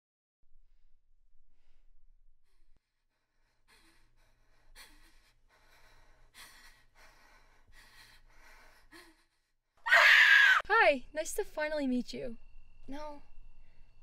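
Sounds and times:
person breathing unevenly: 0:01.5 - 0:09.6.

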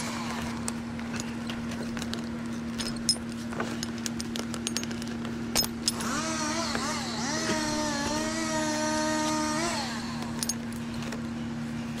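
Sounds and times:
machine engine running: 0:05.8 - 0:11.2.

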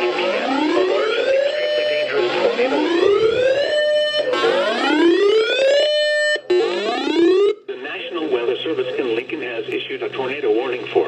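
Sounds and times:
electronic siren whooping: 0:00.0 - 0:07.6.

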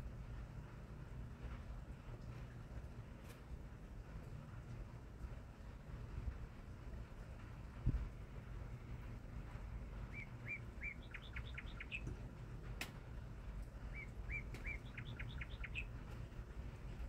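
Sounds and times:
songbird singing: 0:09.5 - 0:12.5, 0:13.6 - 0:16.3.

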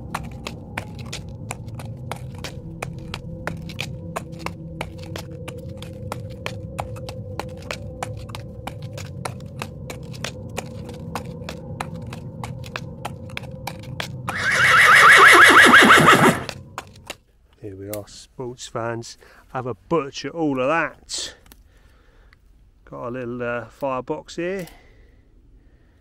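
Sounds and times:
low drone: 0:00.0 - 0:17.2
horse whinny: 0:14.3 - 0:16.6.

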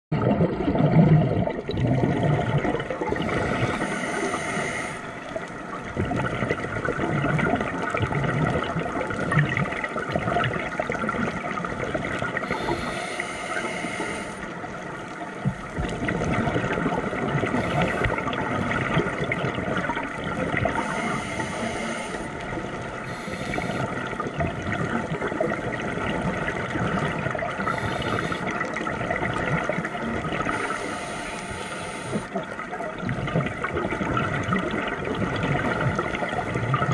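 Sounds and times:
exhaled bubbles gurgling underwater: 0:00.1 - 0:36.9
regulator hiss on inhale: 0:03.1 - 0:05.3, 0:12.4 - 0:14.8, 0:17.5 - 0:18.4, 0:20.7 - 0:22.4, 0:23.0 - 0:24.1, 0:27.6 - 0:28.8, 0:30.4 - 0:32.4.

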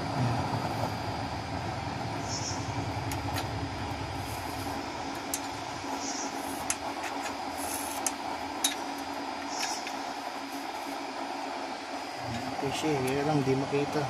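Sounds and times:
low throbbing: 0:00.0 - 0:07.6
oil burner stove rushing hum: 0:00.0 - 0:14.0.

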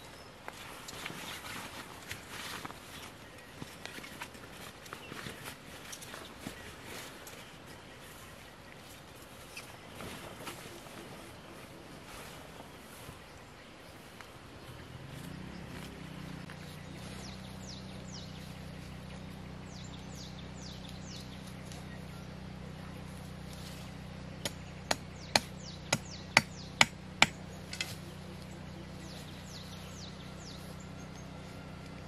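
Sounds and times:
birds chirping: 0:00.0 - 0:32.0
tent stake being hammered: 0:24.4 - 0:28.0.

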